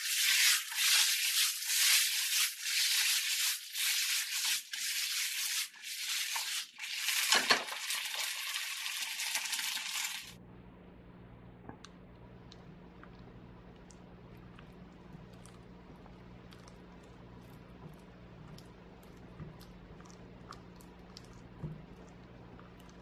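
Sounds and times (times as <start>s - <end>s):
food sizzling in a frying pan: 0.0s - 10.4s.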